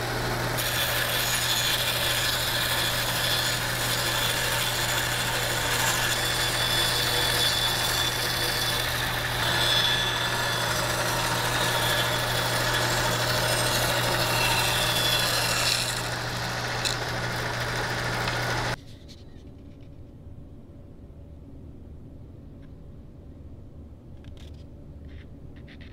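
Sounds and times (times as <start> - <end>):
bandsaw motor hum: 0.0 - 18.8.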